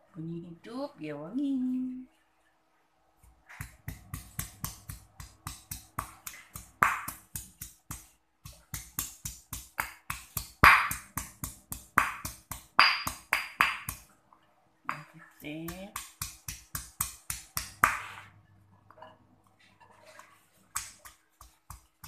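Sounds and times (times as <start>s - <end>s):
stone pestle pounding in mortar: 3.5s - 14.1s, 14.9s - 18.2s.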